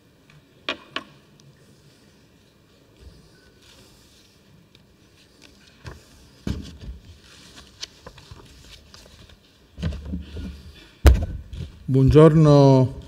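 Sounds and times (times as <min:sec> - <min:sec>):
papers being handled: 0:03.6 - 0:10.7.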